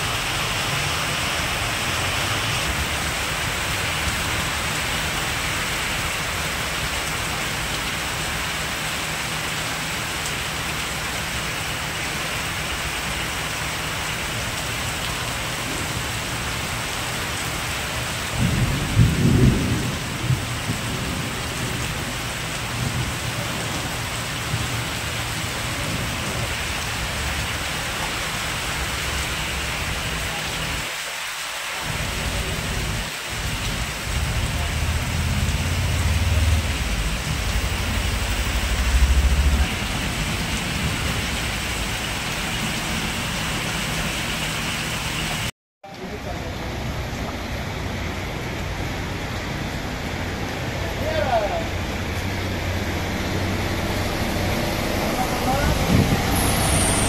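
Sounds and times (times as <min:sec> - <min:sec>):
heavy rain pouring: 0:00.0 - 0:57.0
low rumble: 0:34.1 - 0:43.3.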